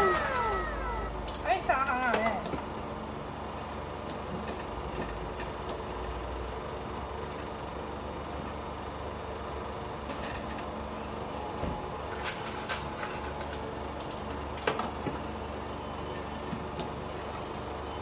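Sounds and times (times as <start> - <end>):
claw machine mechanical hum: 0.0 - 18.0.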